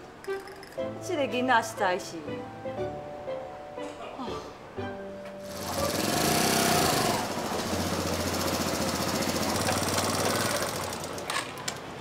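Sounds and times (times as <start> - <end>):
small motorcycle engine chugging: 5.5 - 11.3.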